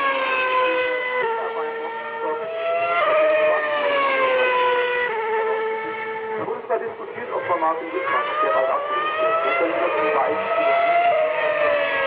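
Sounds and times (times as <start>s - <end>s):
race cars passing at high revs: 0.0s - 12.0s.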